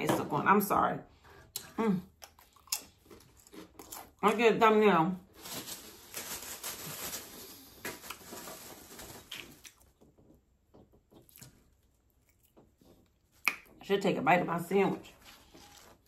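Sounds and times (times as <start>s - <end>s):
soft rustling and handling: 14.9s - 16.0s.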